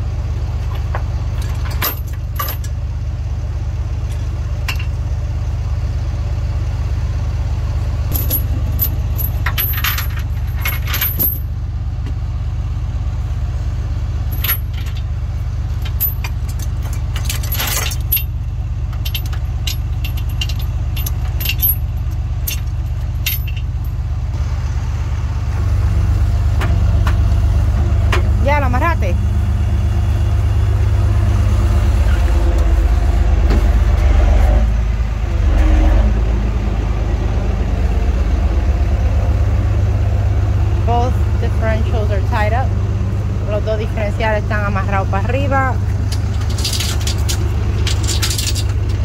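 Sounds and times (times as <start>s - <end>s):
truck engine idling: 0.0s - 49.0s
chain clinking and rattling: 0.7s - 2.7s, 8.1s - 11.5s, 14.3s - 15.1s, 15.7s - 24.0s, 46.1s - 49.0s.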